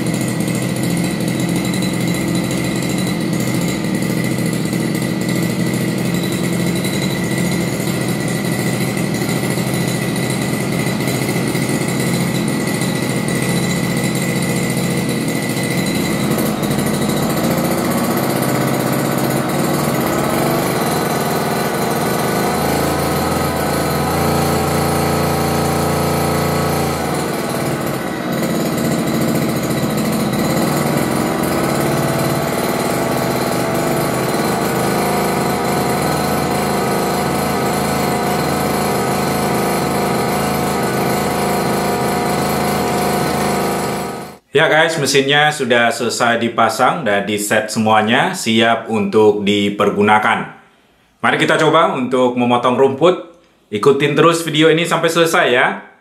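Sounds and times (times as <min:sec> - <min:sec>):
brush cutter engine running: 0:00.0 - 0:44.5.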